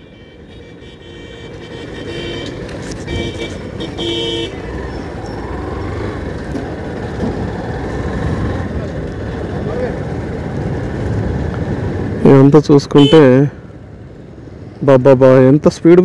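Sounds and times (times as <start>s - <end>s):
vehicle horn toots: 0.0s - 4.7s, 13.0s - 13.4s
motorcycle engine: 0.0s - 12.5s.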